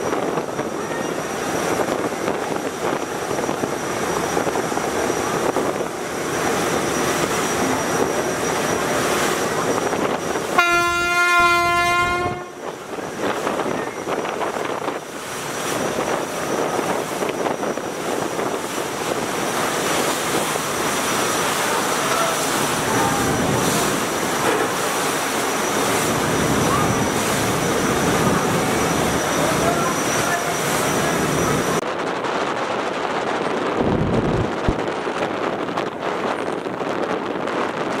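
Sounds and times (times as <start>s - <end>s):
boat engines rushing: 0.0s - 38.0s
churning river water: 0.0s - 38.0s
boat horn long blast: 10.4s - 12.7s.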